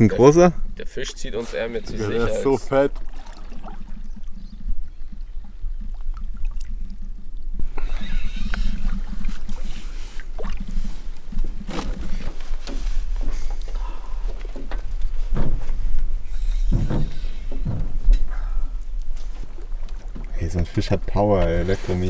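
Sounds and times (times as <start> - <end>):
water slapping against canoe hull: 2.8 - 6.8, 7.6 - 18.3, 19.0 - 22.0
wind rumble on microphone: 3.6 - 13.1
small knocks: 16.6 - 18.3.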